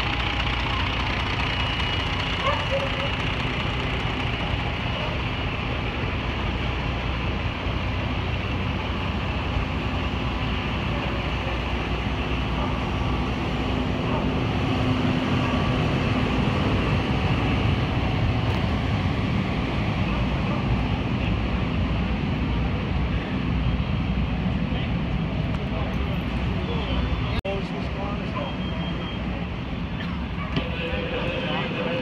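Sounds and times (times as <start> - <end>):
diesel engines droning: 0.0 - 32.0.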